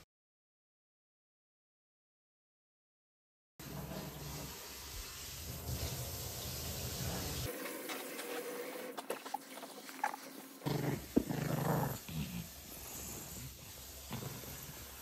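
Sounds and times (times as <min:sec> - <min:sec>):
dog growl: 0:10.0 - 0:15.0.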